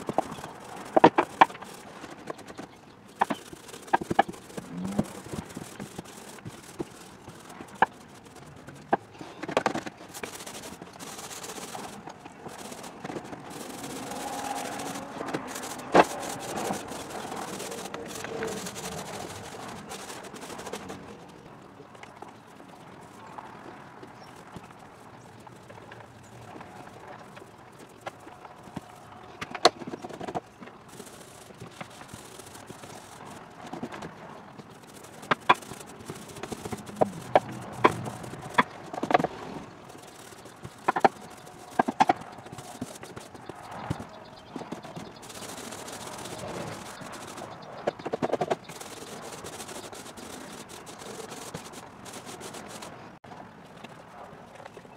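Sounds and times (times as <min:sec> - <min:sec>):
paint roller swishing: 0:00.0 - 0:21.4, 0:29.7 - 0:53.2
roller frame clicks and knocks: 0:25.4 - 0:52.9.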